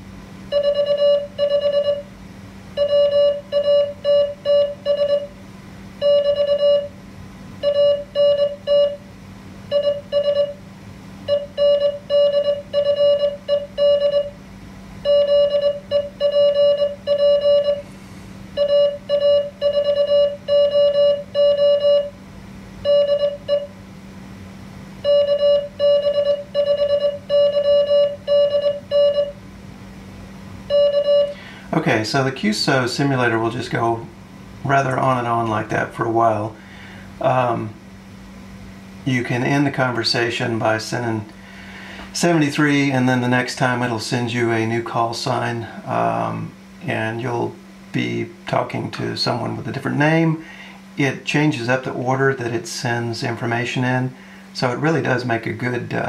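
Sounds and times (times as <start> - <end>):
morse code beeps: 0.5 - 2.1, 2.8 - 5.4, 6.0 - 6.9, 7.6 - 9.0, 9.7 - 10.6, 11.3 - 14.4, 15.0 - 17.8, 18.6 - 22.2, 22.8 - 23.7, 25.0 - 29.4, 30.7 - 31.4.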